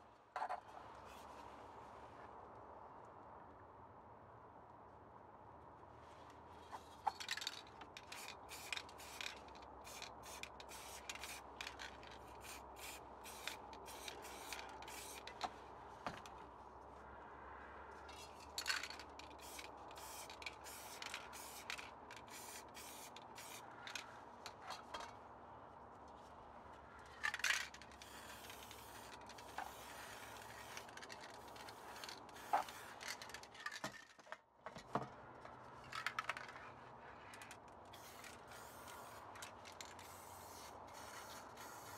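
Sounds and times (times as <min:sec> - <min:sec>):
spray paint can hissing: 0:07.3 - 0:15.4, 0:18.2 - 0:24.0, 0:27.2 - 0:33.5, 0:37.9 - 0:41.9.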